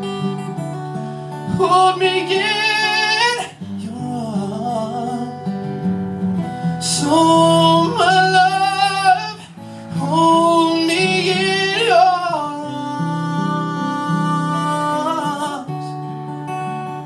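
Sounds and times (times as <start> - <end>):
strummed acoustic guitar: 0.0 - 17.0
man singing: 1.3 - 5.7, 6.7 - 16.1.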